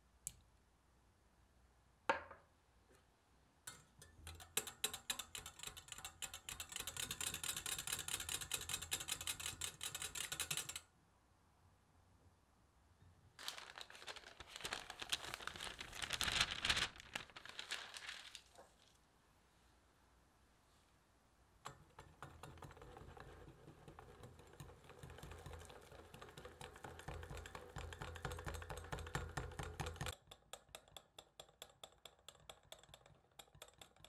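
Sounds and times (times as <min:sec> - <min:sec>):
whisk clicking against glass: 0:03.7 - 0:10.8, 0:21.6 - 0:34.0.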